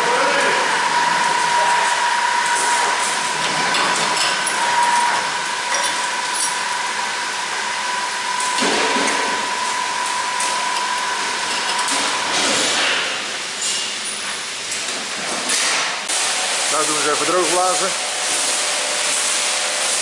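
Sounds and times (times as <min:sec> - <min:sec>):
high-pressure water rushing: 0:15.5 - 0:20.0.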